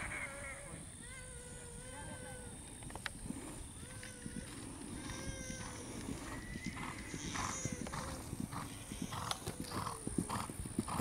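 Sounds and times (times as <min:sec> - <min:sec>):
horse breath puffs: 0:03.1 - 0:11.0
horse hoofbeats on grass: 0:04.0 - 0:11.0.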